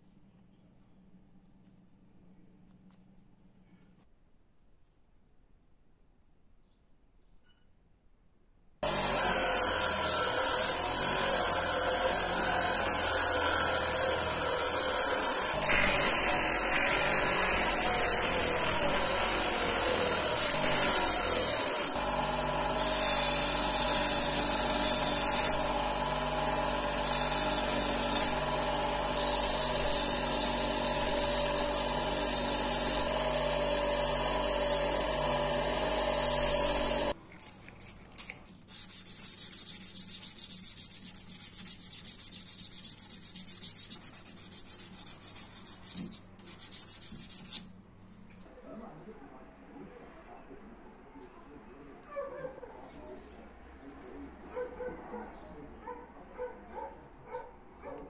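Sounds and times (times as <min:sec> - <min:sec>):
bench grinder motor hum: 0:08.8 - 0:37.2
rubbing and handling sounds: 0:37.2 - 0:48.5.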